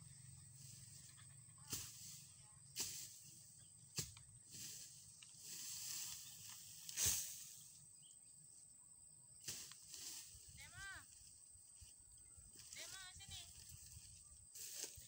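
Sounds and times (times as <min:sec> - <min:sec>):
dry grass rustling and crackling: 0:02.8 - 0:07.7, 0:09.4 - 0:15.0.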